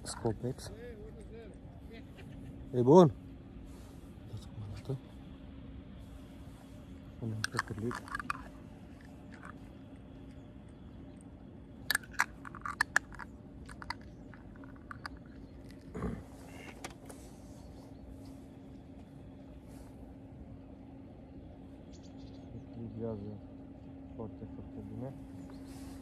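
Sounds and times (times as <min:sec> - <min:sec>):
steady low hum: 0:00.0 - 0:26.0
fishing tackle clicks and rattles: 0:07.3 - 0:09.6, 0:11.9 - 0:15.9.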